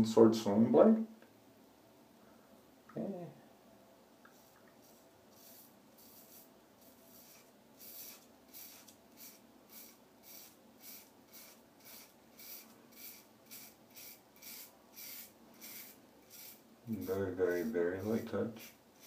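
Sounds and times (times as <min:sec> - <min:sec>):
razor scraping beard stubble: 0:04.3 - 0:19.0.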